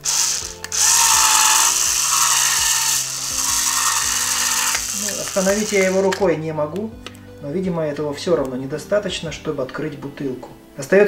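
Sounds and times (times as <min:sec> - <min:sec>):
small electric motor whirring: 0:00.0 - 0:06.2.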